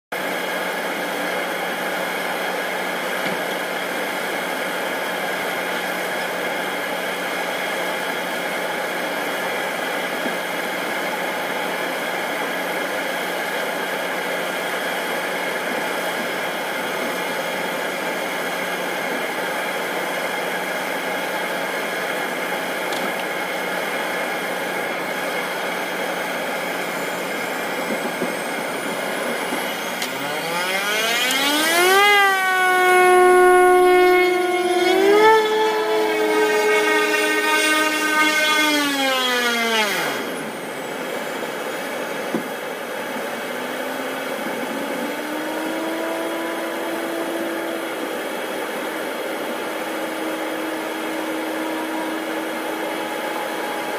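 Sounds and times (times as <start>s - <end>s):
turboprop engine idling: 0.2s - 53.9s
rising engine tone: 20.9s - 42.2s, 43.4s - 53.9s.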